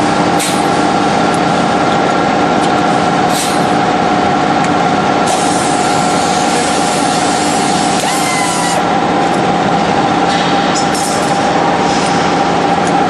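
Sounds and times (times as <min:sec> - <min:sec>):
factory machinery drone: 0:00.0 - 0:13.0
pneumatic tool air hissing: 0:03.3 - 0:03.7, 0:05.3 - 0:08.8
short air puff: 0:03.3 - 0:03.7.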